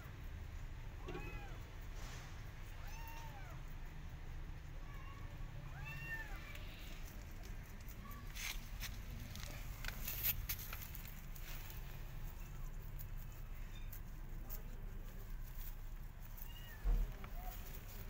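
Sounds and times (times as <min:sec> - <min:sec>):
kitten meowing: 0:01.0 - 0:01.6, 0:02.8 - 0:03.6, 0:04.9 - 0:06.8, 0:16.4 - 0:17.0
sharp clicks and rustles: 0:06.3 - 0:18.0.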